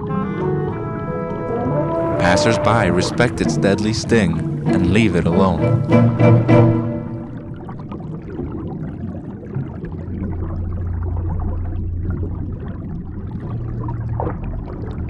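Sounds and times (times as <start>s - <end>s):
underwater rumble: 5.5s - 15.0s.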